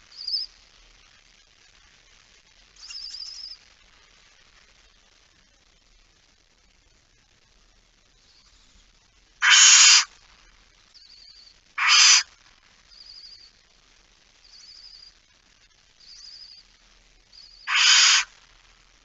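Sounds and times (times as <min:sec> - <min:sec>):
owl chicks twittering: 0:00.1 - 0:00.5, 0:02.8 - 0:03.6, 0:09.4 - 0:10.1, 0:11.0 - 0:12.3, 0:12.9 - 0:13.6, 0:14.4 - 0:15.2, 0:16.0 - 0:16.7, 0:17.4 - 0:18.3
owls rasping hisses: 0:09.4 - 0:10.1, 0:11.8 - 0:12.3, 0:17.6 - 0:18.3.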